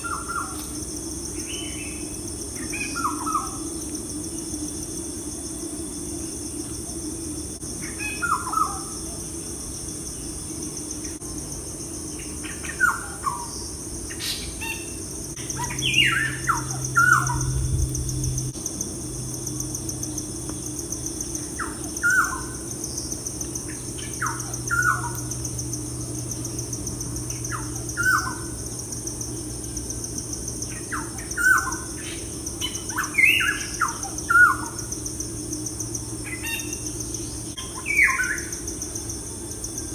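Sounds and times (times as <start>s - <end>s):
steady high hiss: 0.0s - 39.9s
small birds chirping: 12.2s - 18.5s
low hum: 15.3s - 30.8s.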